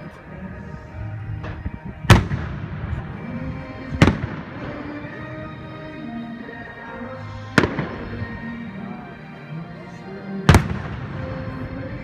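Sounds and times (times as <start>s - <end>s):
echoing rumble: 0.0s - 8.9s, 10.5s - 12.0s
firework bangs: 2.1s - 3.2s, 3.9s - 5.0s, 7.5s - 8.2s, 10.5s - 11.9s.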